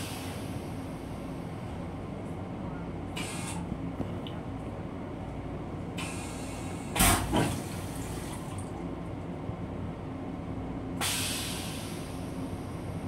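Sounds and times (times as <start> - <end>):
train running rumble: 0.0 - 13.0
train toilet flushing: 6.0 - 8.8.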